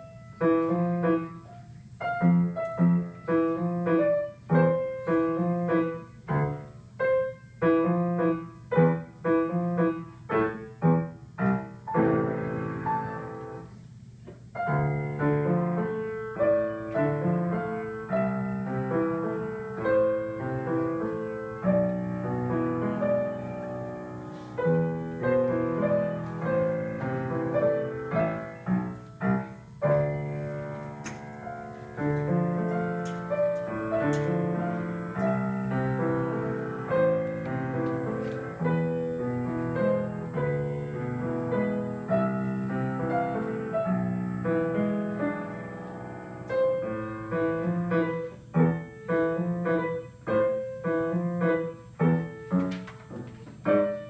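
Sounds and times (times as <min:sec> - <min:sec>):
grand piano duet: 0:00.0 - 0:54.0.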